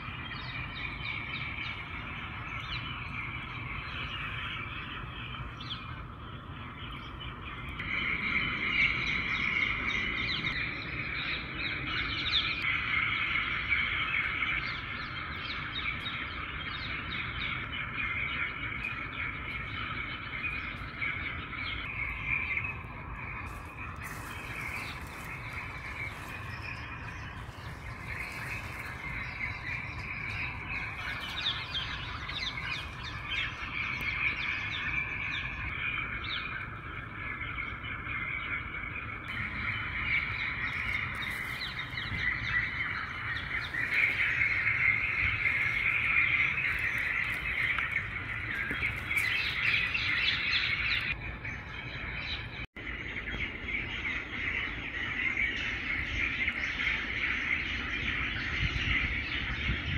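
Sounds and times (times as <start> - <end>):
birds chirping and calling: 0.0 - 59.9
low rumble: 14.8 - 59.9.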